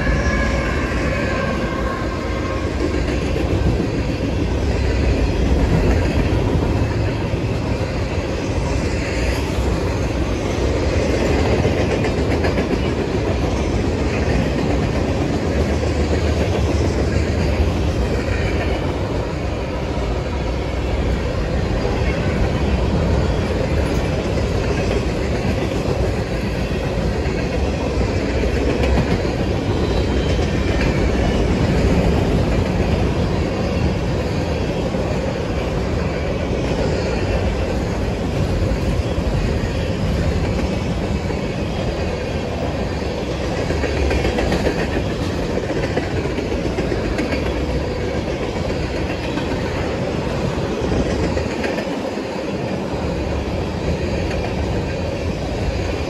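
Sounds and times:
train wheels rolling on rails: 0:00.0 - 0:56.0.

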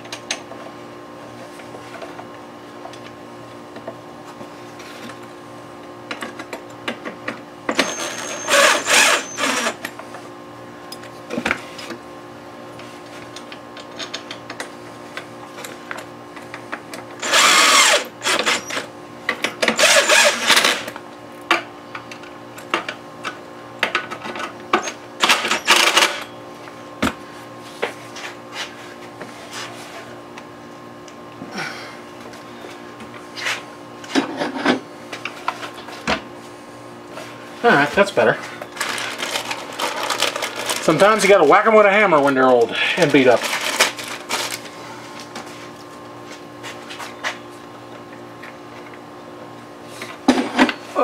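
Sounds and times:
cordless drill running: 0:07.7 - 0:09.8, 0:17.2 - 0:18.8, 0:19.7 - 0:20.9.

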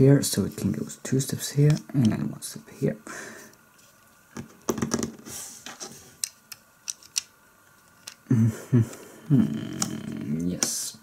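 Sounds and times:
plastic bricks clicking: 0:06.2 - 0:07.3, 0:07.9 - 0:08.3.

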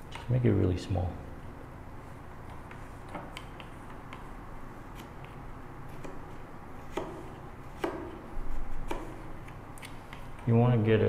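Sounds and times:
chisel paring wood: 0:06.9 - 0:08.2.

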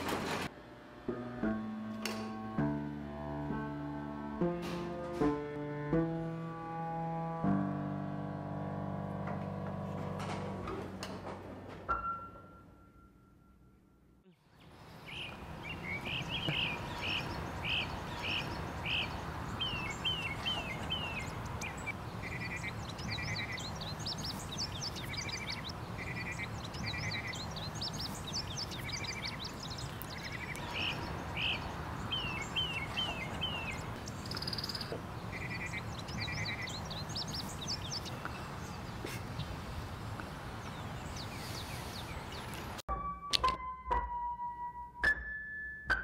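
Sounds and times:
birds chirping and whistling: 0:14.9 - 0:39.5, 0:40.6 - 0:42.8
buzzy pulsed bird trills: 0:15.2 - 0:38.2.

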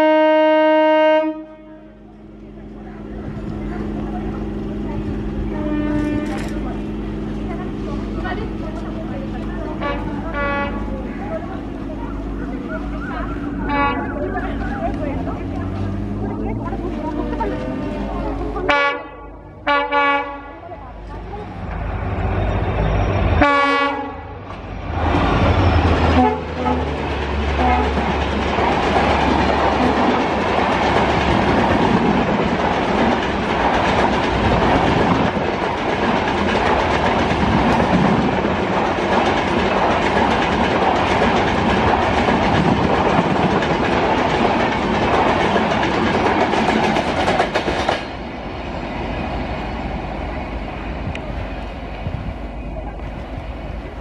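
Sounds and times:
locomotive horn: 0:00.0 - 0:02.1, 0:05.5 - 0:06.7, 0:09.8 - 0:11.1, 0:12.7 - 0:15.0, 0:16.8 - 0:20.6, 0:23.2 - 0:24.4, 0:26.0 - 0:27.0, 0:27.6 - 0:28.0
locomotive engine passing: 0:00.0 - 0:54.0
train wheel and rail noise: 0:00.0 - 0:54.0.

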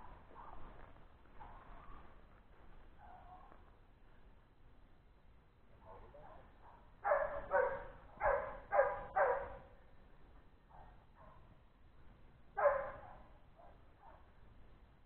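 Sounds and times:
dog barking: 0:05.9 - 0:09.6, 0:12.6 - 0:14.3.

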